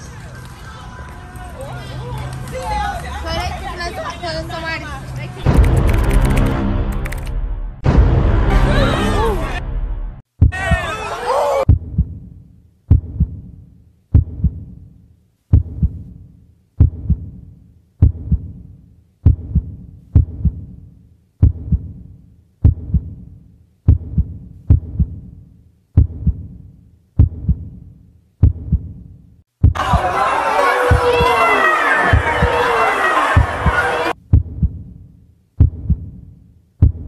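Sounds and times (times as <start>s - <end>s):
heartbeat double thumps: 5.4s - 8.5s, 11.7s - 14.8s, 15.5s - 16.2s, 16.8s - 20.8s, 21.4s - 22.0s, 22.6s - 23.3s, 23.9s - 25.4s, 26.0s - 27.8s, 28.4s - 30.1s, 32.1s - 32.6s, 33.4s - 35.0s, 35.6s - 37.0s.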